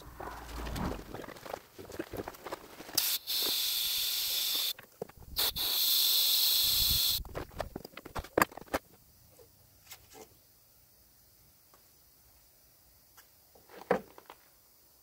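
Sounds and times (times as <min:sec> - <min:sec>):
gas hissing from nozzle: 0:03.0 - 0:04.7, 0:05.3 - 0:07.2.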